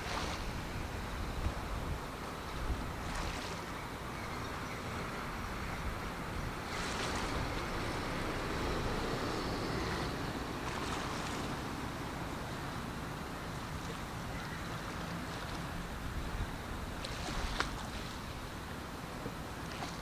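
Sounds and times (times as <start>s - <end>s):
wind noise on microphone: 0.0s - 13.5s, 15.2s - 18.8s
small waves splashing: 0.0s - 20.0s.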